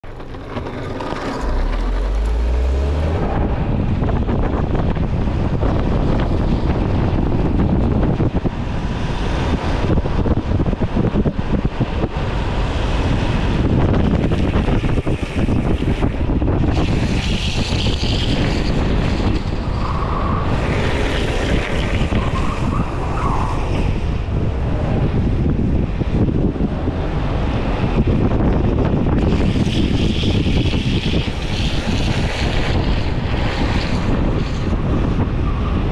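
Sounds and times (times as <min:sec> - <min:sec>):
skateboard wheels rolling on asphalt: 0:00.0 - 0:35.9
wind rushing over microphone: 0:00.0 - 0:35.9.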